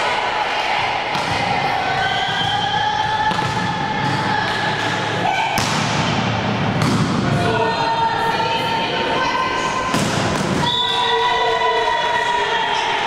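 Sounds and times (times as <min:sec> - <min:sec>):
voices in sports hall: 0:00.0 - 0:13.0
volleyball bouncing on floor: 0:02.3 - 0:04.6, 0:05.6 - 0:07.3
volleyball being struck: 0:03.2 - 0:04.2, 0:05.5 - 0:07.3, 0:09.9 - 0:10.7.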